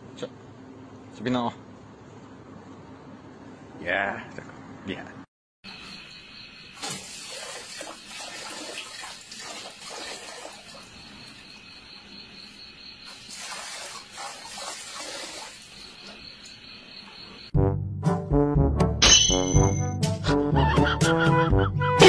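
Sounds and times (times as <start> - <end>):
dog lapping water: 6.8 - 11.1, 13.3 - 15.9
water splashing into metal bowl: 6.8 - 11.4, 13.1 - 16.0.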